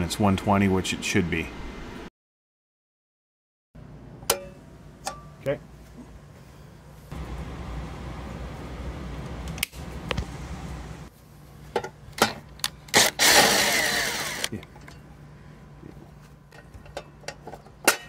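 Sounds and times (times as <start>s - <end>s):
cordless drill driving screw: 12.9s - 14.5s.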